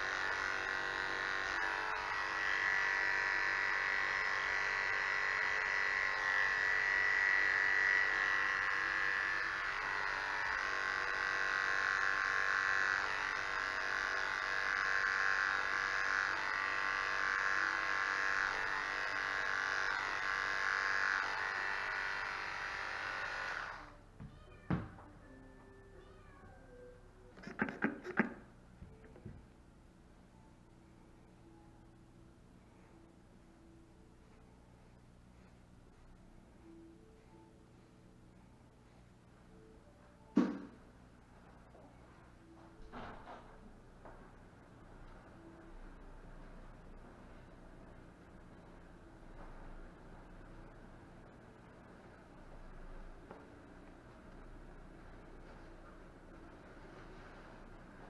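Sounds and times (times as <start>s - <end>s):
electric hair clippers buzzing: 0.0s - 24.0s, 27.4s - 29.4s, 40.3s - 40.8s.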